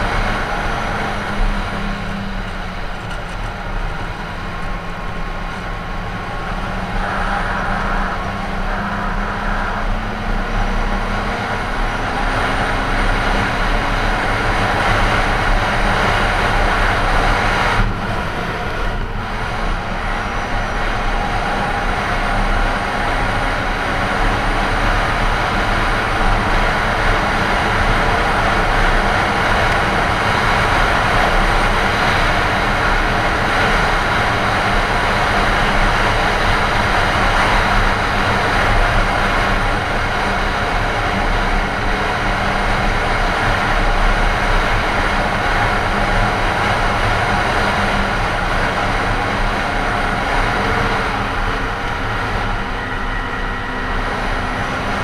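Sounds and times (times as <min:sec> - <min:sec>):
snowmobile engine drone: 0:00.0 - 0:55.0
track and snow rushing: 0:00.0 - 0:55.0.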